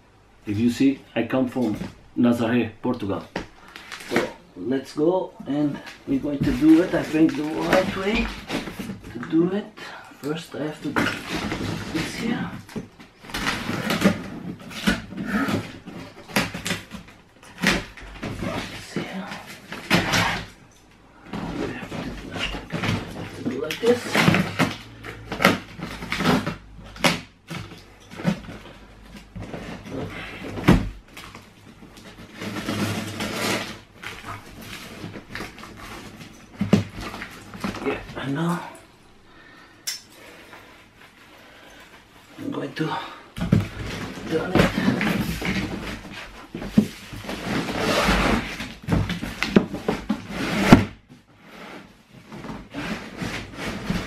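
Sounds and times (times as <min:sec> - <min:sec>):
cardboard scraping on tiled floor: 0:05.6 - 0:09.2, 0:10.8 - 0:20.6, 0:21.2 - 0:38.3, 0:43.4 - 0:54.0.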